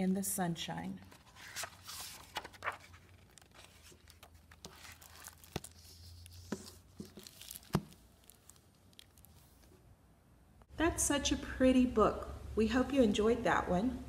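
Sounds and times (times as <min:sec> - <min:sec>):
book pages turning: 0:01.0 - 0:09.8
paper rustling and crinkling: 0:01.0 - 0:09.8
book being closed: 0:01.1 - 0:08.0.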